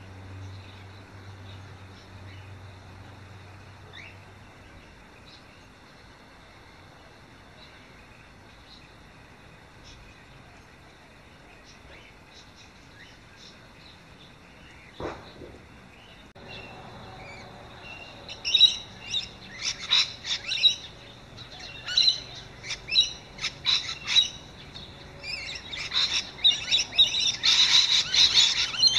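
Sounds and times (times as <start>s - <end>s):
lorikeets screeching: 16.4s - 28.9s.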